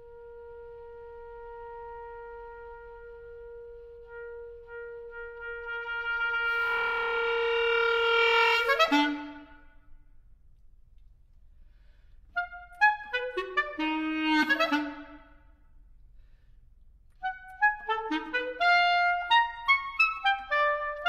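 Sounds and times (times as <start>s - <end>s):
clarinet long note: 0.0s - 9.8s, 12.4s - 15.4s, 17.2s - 21.0s.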